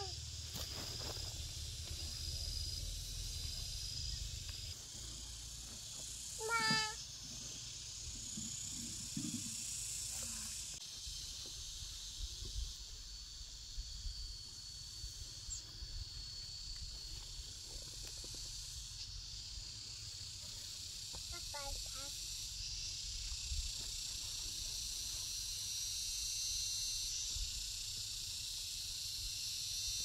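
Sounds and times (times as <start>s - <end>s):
insects chorus: 0.0s - 30.0s.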